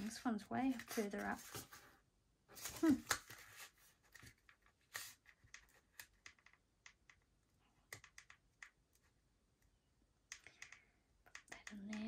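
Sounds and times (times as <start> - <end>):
hands handling folded cardstock: 0.0 - 6.6.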